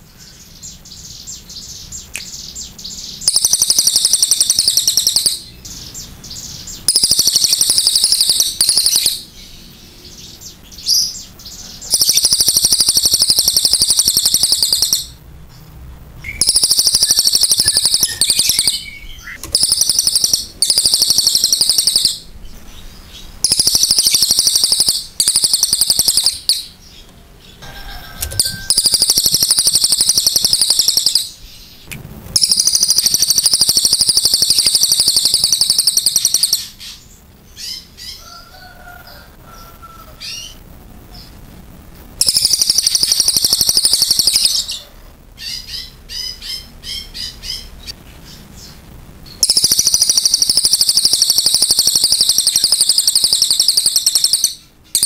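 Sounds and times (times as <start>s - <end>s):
bird rattling trill: 3.2s - 5.5s, 6.8s - 9.2s, 11.8s - 15.2s, 16.3s - 22.3s, 23.4s - 26.7s, 27.7s - 31.4s, 32.4s - 36.8s, 42.2s - 44.7s, 49.4s - 55.0s.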